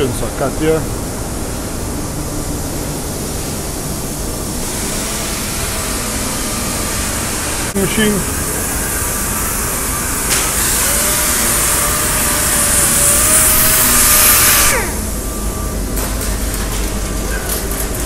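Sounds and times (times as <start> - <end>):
workshop hum: 0.0 - 18.0
air sander hissing and whining: 2.9 - 15.9.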